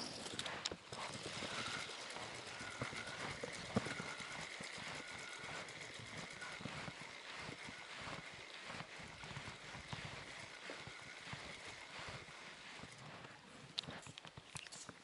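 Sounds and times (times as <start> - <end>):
fishing reel whine: 1.2 - 12.9.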